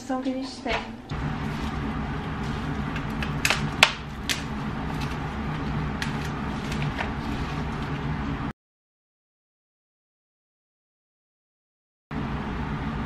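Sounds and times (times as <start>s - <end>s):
steady low hum: 0.0s - 8.5s, 12.1s - 13.0s.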